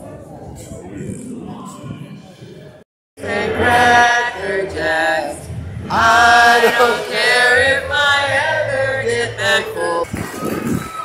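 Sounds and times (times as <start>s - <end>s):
two people singing: 3.2s - 10.1s.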